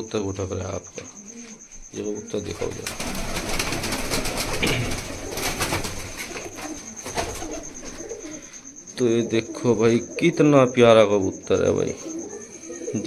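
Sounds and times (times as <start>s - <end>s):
pigeons wings flapping: 2.5s - 8.2s.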